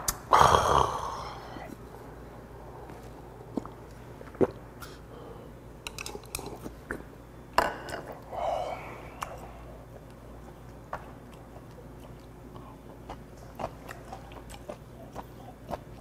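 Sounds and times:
chopsticks clicking on tableware: 5.8s - 6.5s
person chewing: 9.1s - 16.0s.

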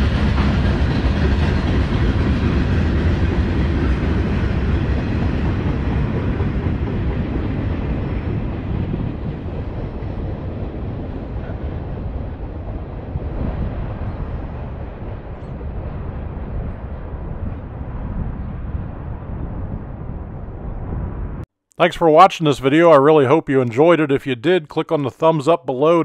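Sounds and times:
freight train wheels rumbling on rail: 0.0s - 20.6s.

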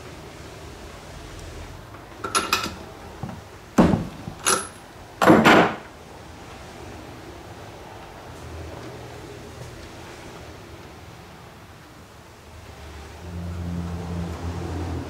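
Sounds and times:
metal tools clacking: 2.2s - 2.8s, 4.4s - 4.8s.

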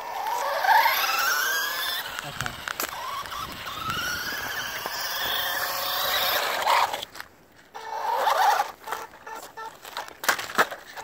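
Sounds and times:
electric motor whining: 0.0s - 7.0s.

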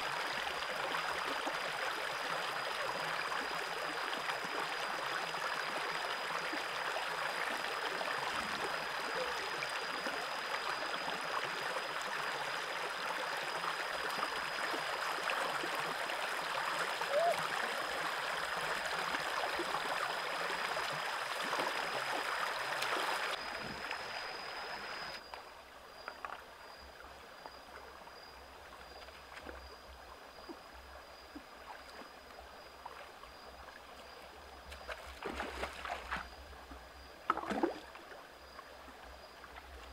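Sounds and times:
stream running over stones: 0.0s - 39.9s
water splashes: 12.7s - 25.2s, 34.0s - 39.9s.

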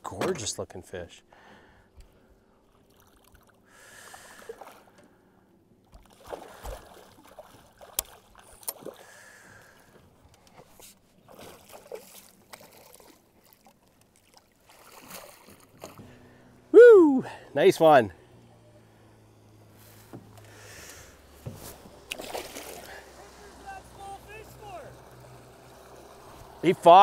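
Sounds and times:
fish splashing in water: 6.0s - 9.2s, 11.3s - 16.0s, 22.0s - 23.2s.

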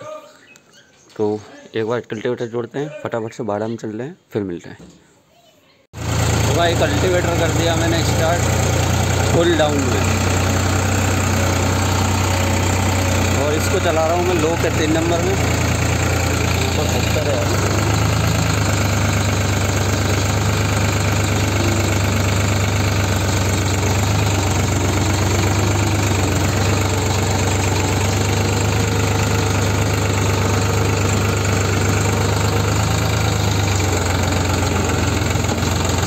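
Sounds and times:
tractor diesel engine under load: 6.0s - 36.0s.

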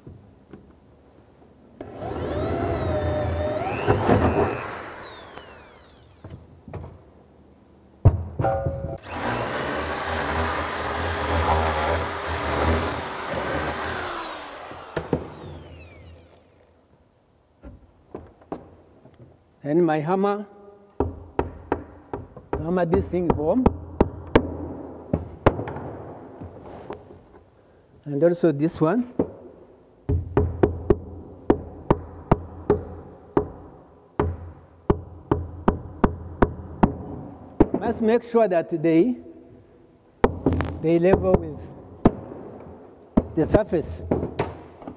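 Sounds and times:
electric drill drilling into wall: 1.8s - 6.4s, 9.0s - 16.7s.

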